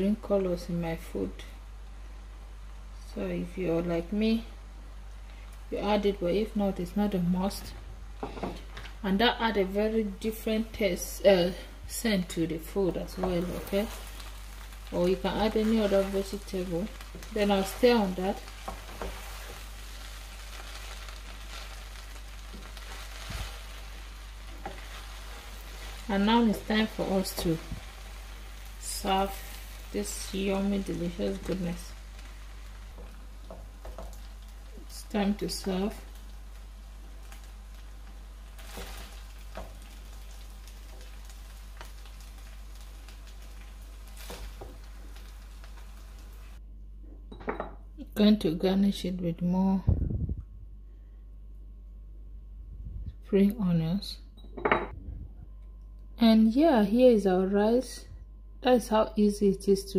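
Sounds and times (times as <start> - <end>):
rice sizzling in a pot: 0.0 - 46.6
wooden spoon scraping: 12.8 - 34.9.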